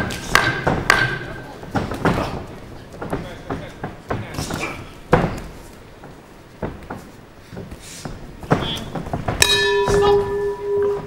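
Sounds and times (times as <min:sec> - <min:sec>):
ring bell ringing: 0:09.4 - 0:11.0.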